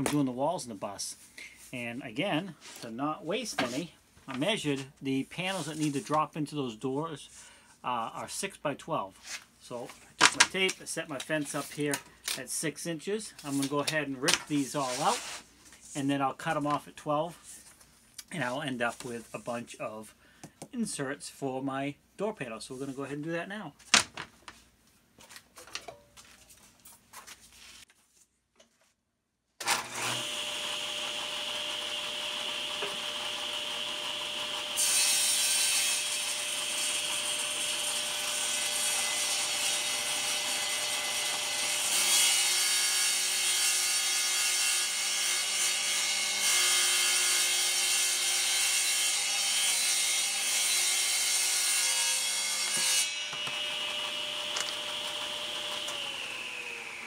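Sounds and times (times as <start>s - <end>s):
table saw cutting wood: 14.5s - 15.4s, 29.6s - 57.0s.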